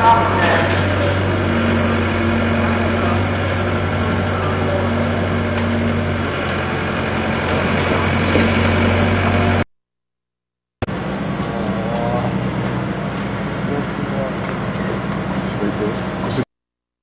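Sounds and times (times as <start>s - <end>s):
electric train humming: 0.0s - 9.6s.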